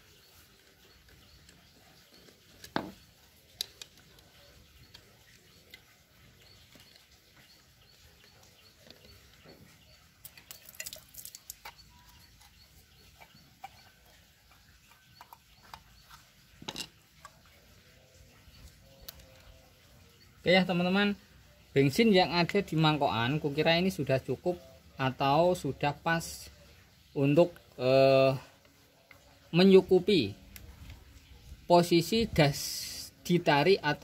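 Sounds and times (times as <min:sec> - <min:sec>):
screwdriver and metal parts clicking: 0:00.5 - 0:05.8, 0:10.2 - 0:12.6, 0:14.9 - 0:17.4.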